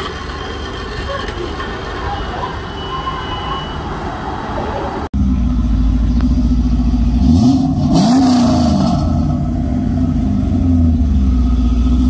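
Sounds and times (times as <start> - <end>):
car engine idling and revving: 5.0 - 12.0.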